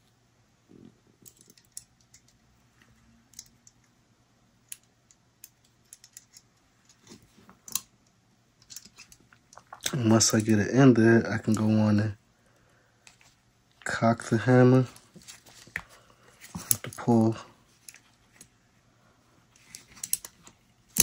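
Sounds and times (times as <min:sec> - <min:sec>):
small metal parts clicking: 0:01.2 - 0:02.4, 0:03.3 - 0:03.8, 0:04.7 - 0:07.0, 0:08.6 - 0:09.9, 0:19.6 - 0:20.4.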